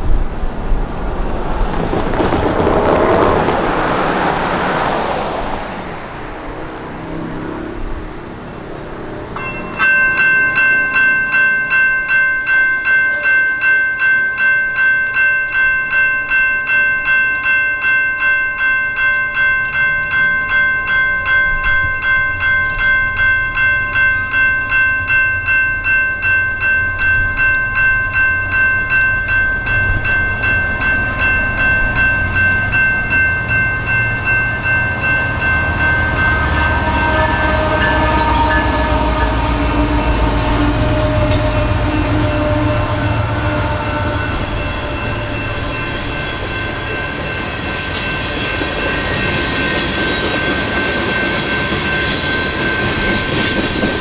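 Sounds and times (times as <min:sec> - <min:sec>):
car passing: 0:00.0 - 0:11.2
railroad crossing warning bells: 0:00.0 - 0:54.0.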